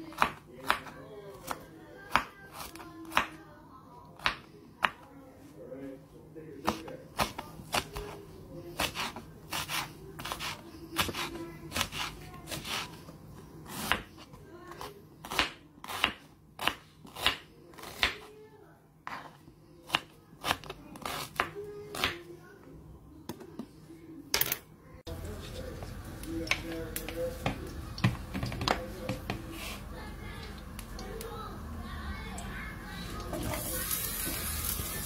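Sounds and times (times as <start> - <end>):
knife chopping on plastic board: 13.7 - 14.1.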